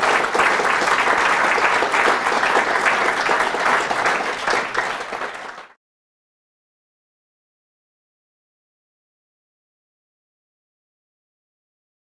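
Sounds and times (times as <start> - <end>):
audience applauding: 0.0 - 5.8.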